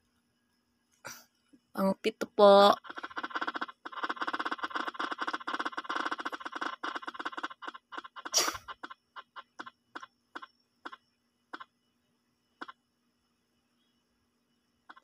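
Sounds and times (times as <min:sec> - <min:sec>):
spinning wheel ticking: 0:02.6 - 0:11.0.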